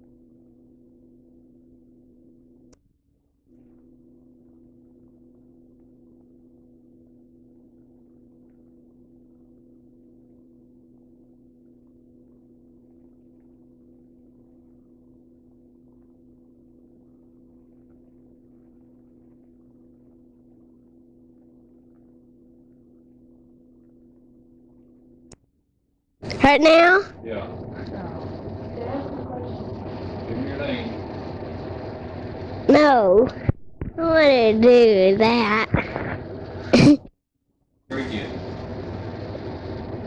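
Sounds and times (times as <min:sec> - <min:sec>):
low electrical hum: 0:00.0 - 0:37.1, 0:37.9 - 0:40.0
faint crackle: 0:03.5 - 0:25.4, 0:26.2 - 0:36.8, 0:37.9 - 0:40.0.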